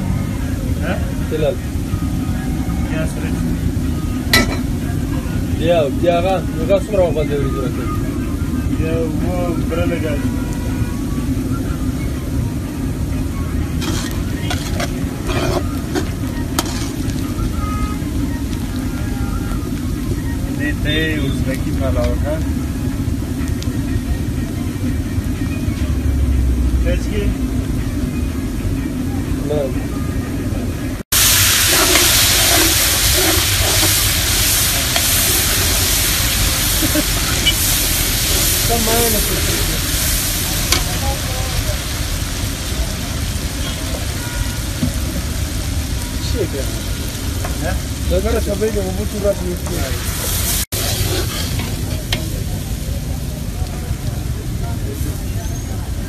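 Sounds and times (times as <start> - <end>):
onions sizzling in oil: 0.0 - 56.0
ladle scraping metal pot: 13.7 - 17.2, 31.2 - 38.7, 50.7 - 52.3
steady low rumble: 30.4 - 43.8.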